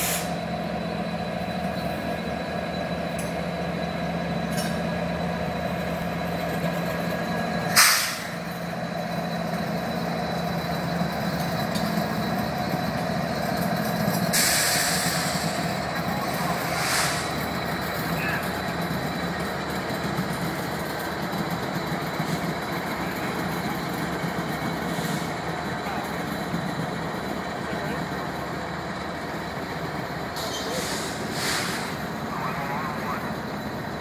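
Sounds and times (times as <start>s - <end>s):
diesel locomotive engine drone: 0.0s - 34.0s
wheel and rail noise: 0.0s - 34.0s
loud hiss: 7.7s - 8.4s, 14.3s - 17.4s, 30.5s - 32.1s.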